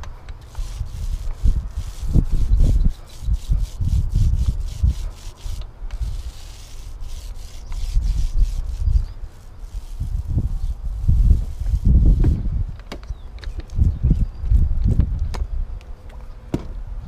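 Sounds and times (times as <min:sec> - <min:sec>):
paint roller rubbing on wood: 0:00.4 - 0:12.4.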